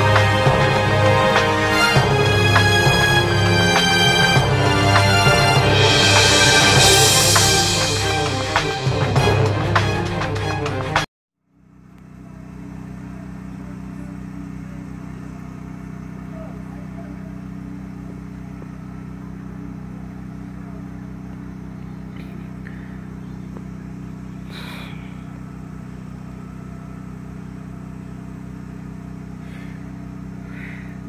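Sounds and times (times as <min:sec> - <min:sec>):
large vehicle engine idling: 0:11.5 - 0:31.0.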